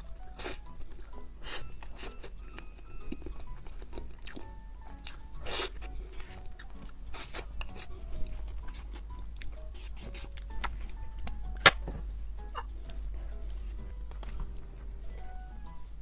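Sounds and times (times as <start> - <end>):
light background music: 0.0 - 16.0
mouth eating sounds: 0.3 - 10.8.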